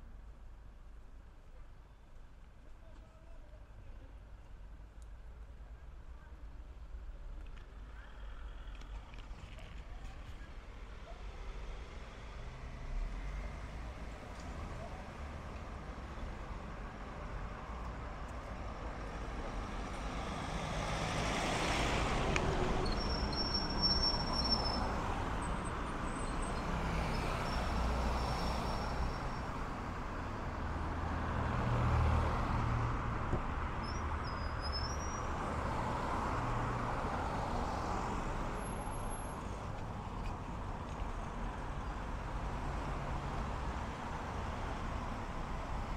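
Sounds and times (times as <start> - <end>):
cars driving past: 11.5 - 16.6, 18.9 - 45.9.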